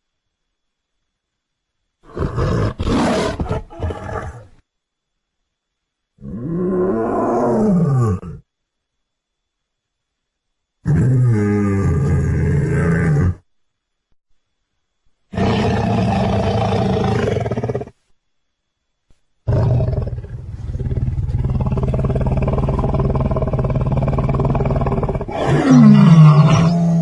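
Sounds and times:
lion growling and roaring: 0:02.1 - 0:04.6, 0:06.2 - 0:08.4, 0:10.8 - 0:13.4, 0:15.3 - 0:18.0, 0:19.5 - 0:27.0.

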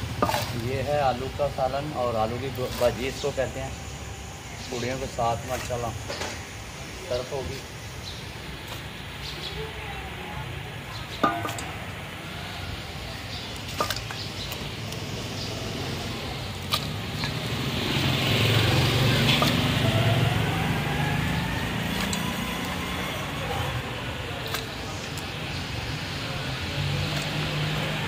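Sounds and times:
metal ladle scooping curry: 0:00.0 - 0:04.4, 0:10.9 - 0:12.0, 0:13.0 - 0:18.1, 0:21.6 - 0:27.8
ladle clinking on pot rim: 0:11.2 - 0:11.7
vehicle passing: 0:11.4 - 0:28.0.

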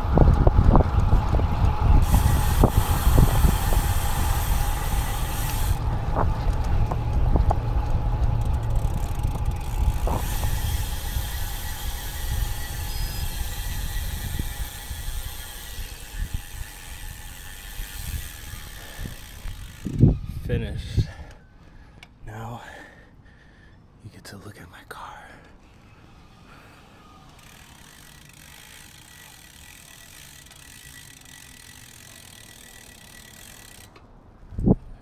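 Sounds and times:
bike clicks and knocks: 0:00.0 - 0:20.2, 0:27.3 - 0:34.1
wind and road rumble: 0:00.0 - 0:24.4, 0:25.2 - 0:35.0.

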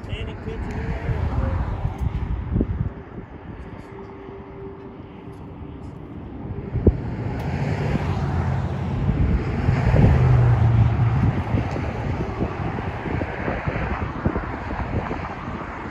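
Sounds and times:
low steady drone: 0:00.0 - 0:15.9
wind buffeting microphone: 0:00.0 - 0:15.9.

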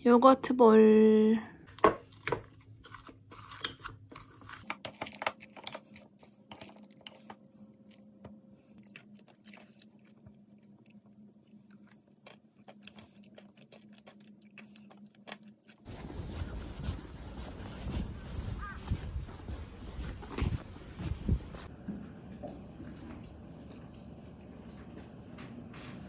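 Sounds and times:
granola crunching: 0:01.7 - 0:16.6.

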